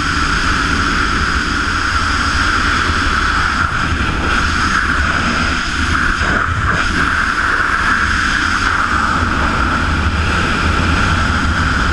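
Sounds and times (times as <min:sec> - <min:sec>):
low rumble: 0:00.0 - 0:11.9
wind roaring on microphone: 0:00.0 - 0:11.9.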